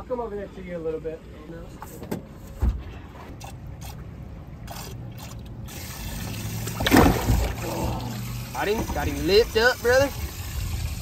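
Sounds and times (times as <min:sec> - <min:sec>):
water trickling and sloshing: 0:01.2 - 0:11.0
water splash: 0:03.3 - 0:09.1
dull thump: 0:06.8 - 0:07.6.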